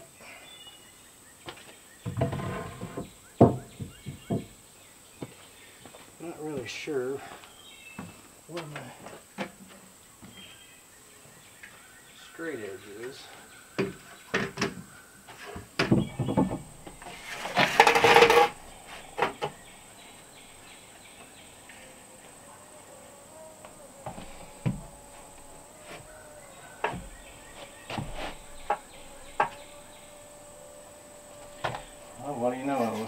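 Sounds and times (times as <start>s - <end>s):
level scraping on wooden boards: 2.1s - 3.2s, 14.2s - 20.2s, 24.0s - 30.1s.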